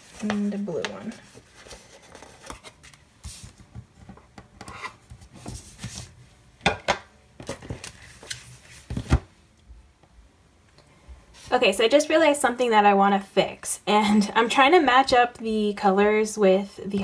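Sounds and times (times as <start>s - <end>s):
paper rubbing and rustling: 0.0s - 3.8s, 4.8s - 6.2s, 7.5s - 9.2s.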